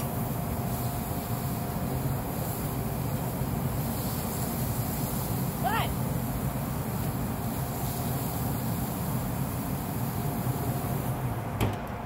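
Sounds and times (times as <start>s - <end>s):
burgers sizzling on a grill: 0.0s - 11.6s
metal grill lid clanking shut: 11.6s - 11.9s.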